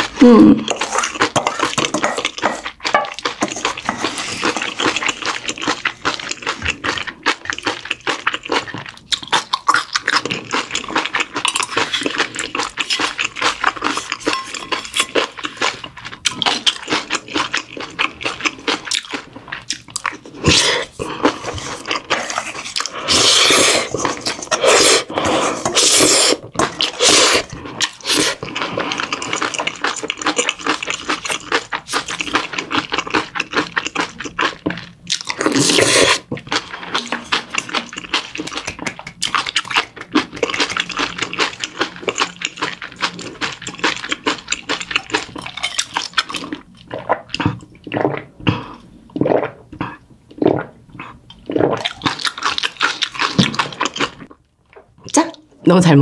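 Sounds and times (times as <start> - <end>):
chewing and smacking: 0.0 - 55.3
metal spoon scraping a bowl: 0.7 - 4.8, 14.0 - 15.3.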